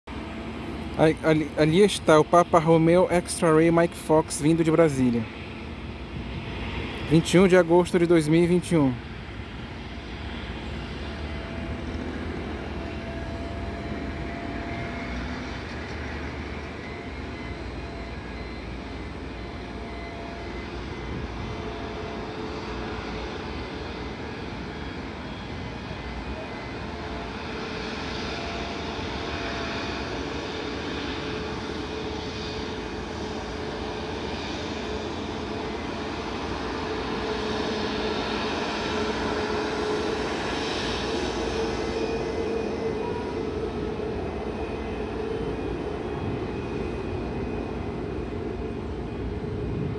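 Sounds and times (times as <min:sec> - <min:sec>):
jet engines whining: 0:00.1 - 0:49.9.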